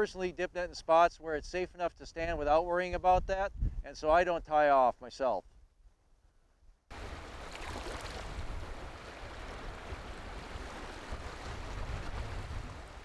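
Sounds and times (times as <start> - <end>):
wind buffeting microphone: 2.2 - 4.5, 6.9 - 13.0
river water rushing: 6.9 - 13.0.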